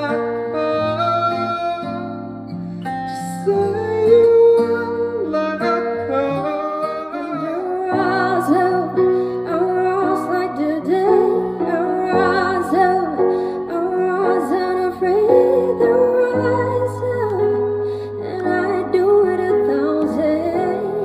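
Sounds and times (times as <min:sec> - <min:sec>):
acoustic guitar playing: 0:00.0 - 0:21.0
woman singing: 0:03.2 - 0:05.8, 0:07.4 - 0:21.0.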